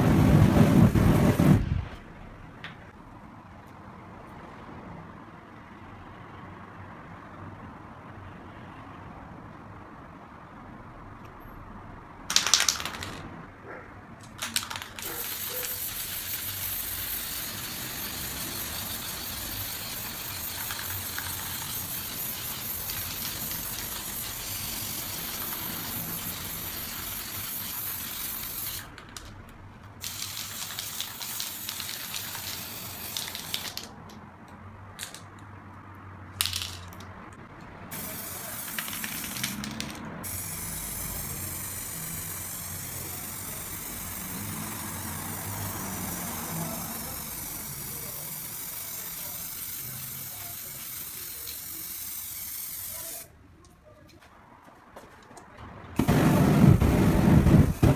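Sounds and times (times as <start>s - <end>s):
spray paint can hissing: 0.0s - 1.6s, 12.3s - 13.2s, 14.2s - 34.1s, 36.4s - 37.1s, 37.9s - 53.4s, 56.0s - 57.9s
short loud spray burst: 0.0s - 2.0s, 14.6s - 28.9s, 30.0s - 33.8s, 37.9s - 53.3s.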